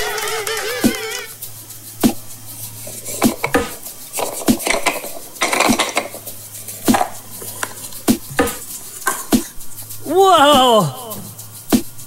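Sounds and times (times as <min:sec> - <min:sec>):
scraping rub of wooden halves: 0:02.0 - 0:10.0
wooden egg knocks and clicks: 0:02.0 - 0:10.0.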